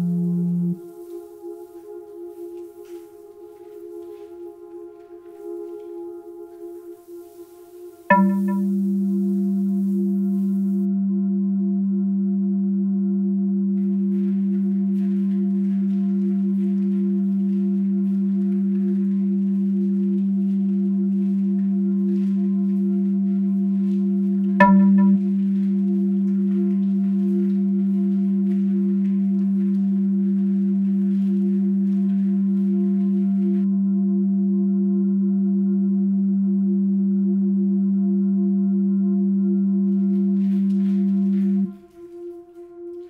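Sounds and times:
sharp struck note: 0:08.1 - 0:09.0, 0:24.6 - 0:25.3
sustained ringing drone: 0:08.1 - 0:12.4, 0:18.8 - 0:29.4.

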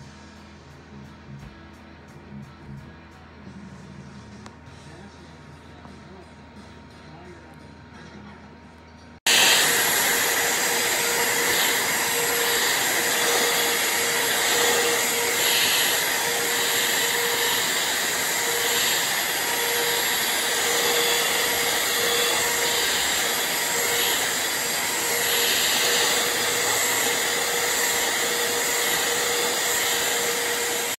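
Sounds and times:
handheld vacuum cleaner running: 0:09.3 - 0:30.9.

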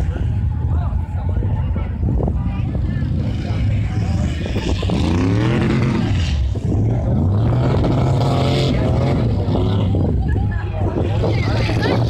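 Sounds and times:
truck engines rumbling: 0:00.0 - 0:12.0
engine revving: 0:02.8 - 0:10.3.

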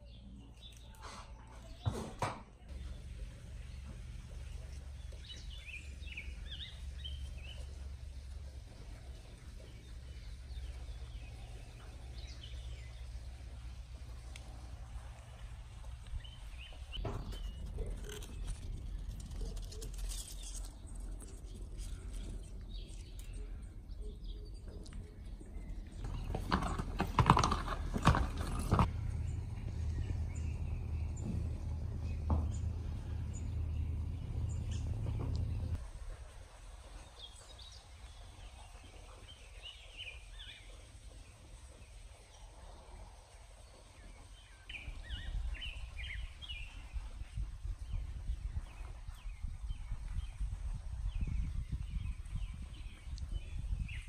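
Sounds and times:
small birds chirping: 0:00.0 - 0:35.8, 0:36.8 - 0:54.0
horse hooves clattering: 0:01.5 - 0:50.8
steady low rumble: 0:28.3 - 0:38.6.

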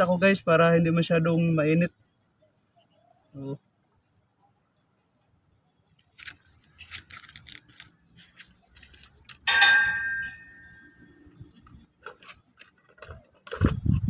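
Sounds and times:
ringing metallic clank: 0:09.4 - 0:11.2.

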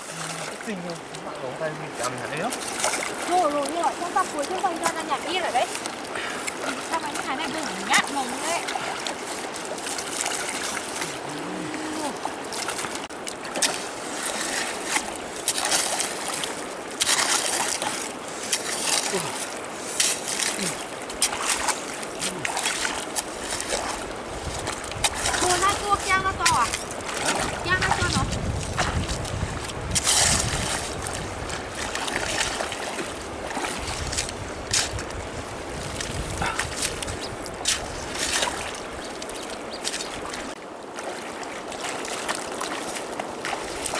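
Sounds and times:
sharp water splashes: 0:00.0 - 0:43.9
stream water sloshing: 0:00.0 - 0:43.9
hoe dragged through mud: 0:13.6 - 0:33.0.

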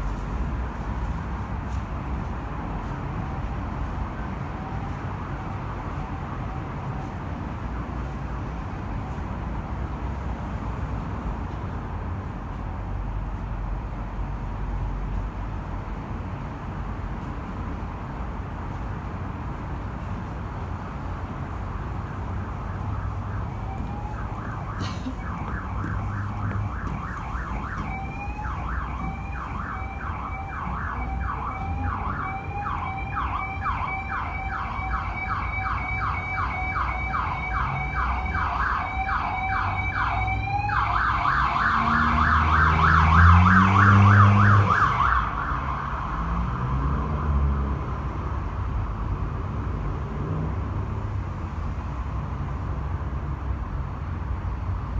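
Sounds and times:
highway traffic rumble: 0:00.0 - 0:54.9
emergency vehicle siren: 0:03.2 - 0:09.3, 0:21.0 - 0:48.8
heavy engine climbing in pitch: 0:22.6 - 0:51.0.

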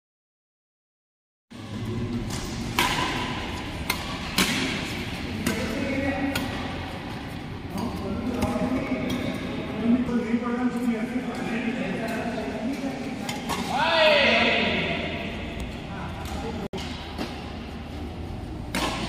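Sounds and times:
steady hall hum: 0:01.6 - 0:19.0
rackets striking shuttlecock: 0:02.2 - 0:06.8, 0:18.6 - 0:19.0.

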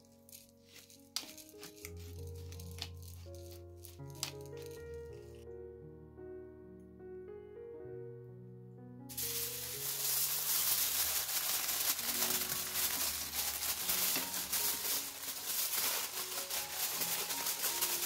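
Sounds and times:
aluminium foil crinkling: 0:00.0 - 0:05.3, 0:09.1 - 0:18.0
soft piano music: 0:00.0 - 0:18.0.

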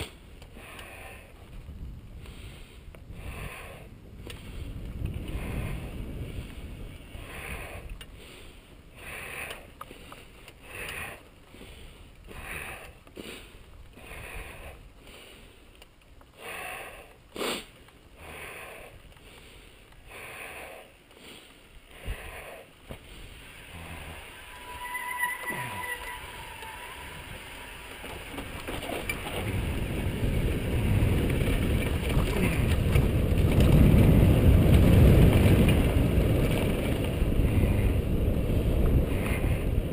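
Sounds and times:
person breathing hard: 0:00.0 - 0:01.5, 0:02.2 - 0:24.5
low wind rumble on microphone: 0:00.0 - 0:17.3, 0:17.9 - 0:39.9.

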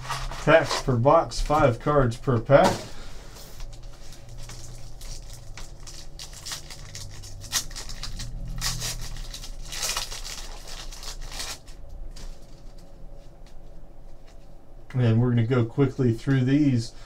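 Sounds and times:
foil wrappers crackling: 0:03.6 - 0:12.9
wrapper ripping: 0:03.7 - 0:12.7.

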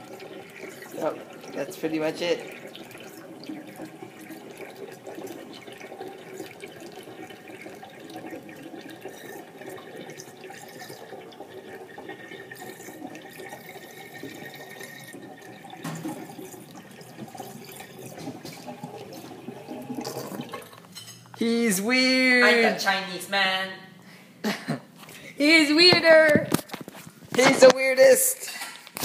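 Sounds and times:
water gurgling down a drain: 0:00.0 - 0:20.8.

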